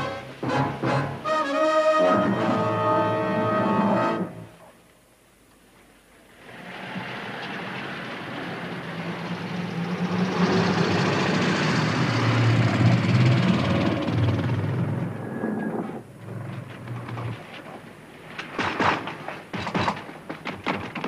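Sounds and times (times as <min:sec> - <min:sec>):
truck engine driving past: 0:06.5 - 0:15.8.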